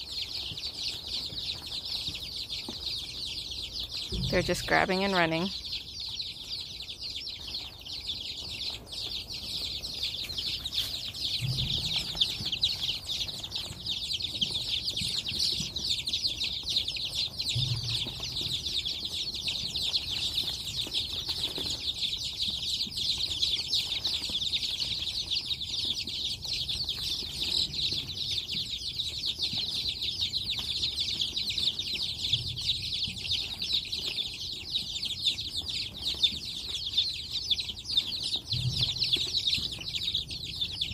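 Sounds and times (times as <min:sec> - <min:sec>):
chicks peeping: 0:00.0 - 0:40.9
soft low thumps: 0:11.4 - 0:13.1.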